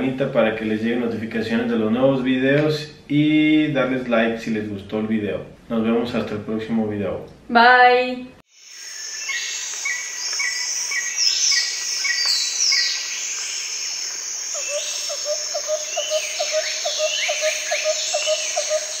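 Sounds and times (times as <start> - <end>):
steady high-pitched hiss: 8.5 - 19.0.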